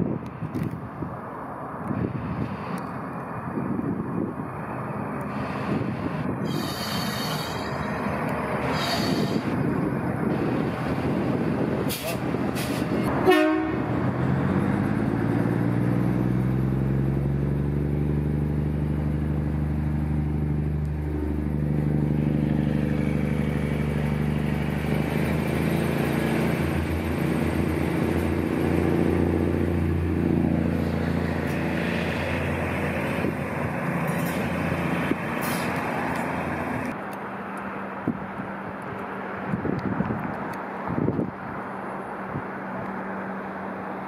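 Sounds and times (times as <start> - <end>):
diesel railcar engine drone: 0.0 - 44.0
train wheels on rails: 5.2 - 15.1, 18.9 - 37.0.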